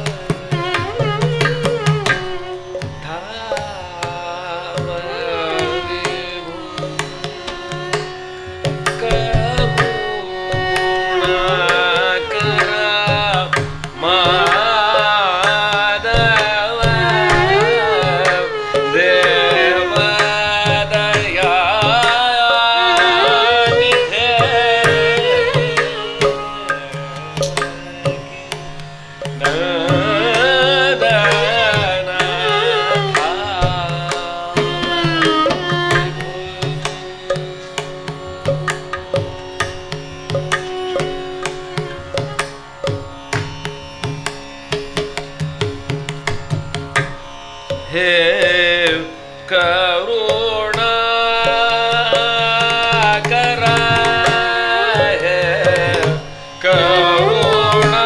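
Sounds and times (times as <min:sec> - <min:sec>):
tanpura drone: 0:00.0 - 0:58.0
violin: 0:00.0 - 0:58.0
man singing ornamented phrases: 0:03.0 - 0:07.5, 0:09.0 - 0:10.4, 0:11.2 - 0:28.4, 0:29.4 - 0:37.4, 0:47.9 - 0:58.0
hand drum strokes: 0:29.2 - 0:43.0.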